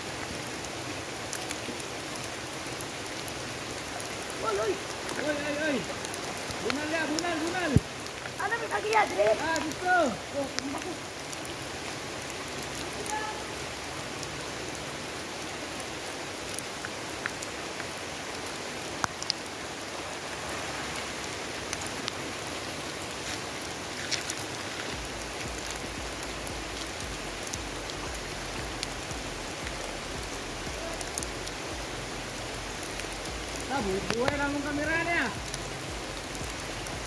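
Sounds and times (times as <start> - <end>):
steady rain falling: 0.0 - 37.0.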